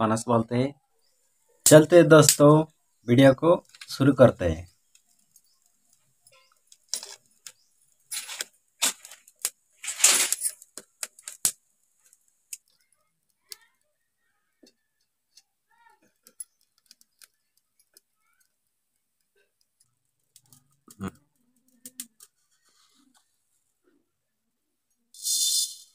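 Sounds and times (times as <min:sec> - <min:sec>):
burning wood crackling: 0:04.8 - 0:12.9
dry twigs clicking and rustling: 0:04.8 - 0:13.7, 0:19.8 - 0:22.3.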